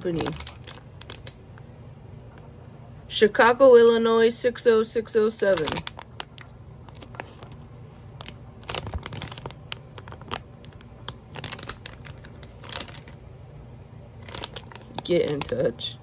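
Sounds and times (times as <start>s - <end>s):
plastic bag crinkling: 0.0s - 1.4s, 5.3s - 13.2s, 14.2s - 16.0s.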